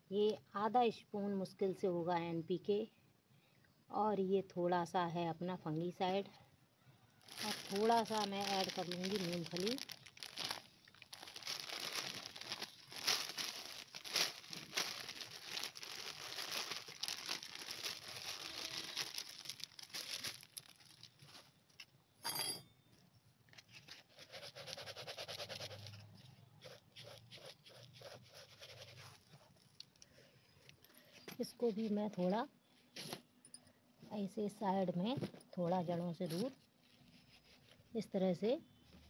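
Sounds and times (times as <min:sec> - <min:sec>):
plastic bag crinkling: 0:07.2 - 0:21.8.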